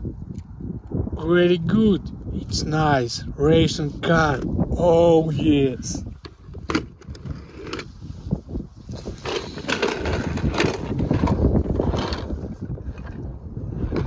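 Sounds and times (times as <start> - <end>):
wind buffeting microphone: 0.0 - 14.0
toy cars rattling in plastic box: 9.2 - 12.4.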